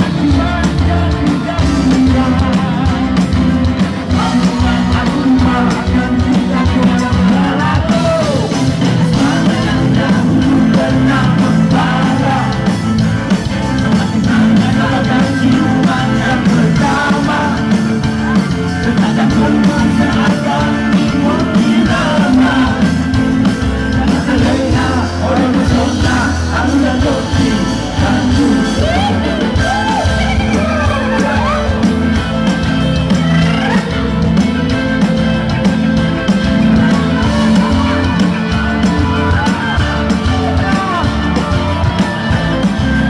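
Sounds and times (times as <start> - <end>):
live band with singers: 0.0 - 43.0.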